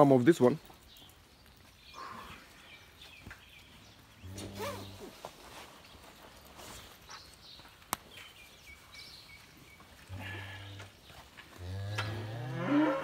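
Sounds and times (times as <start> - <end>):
cow mooing: 11.6 - 13.0.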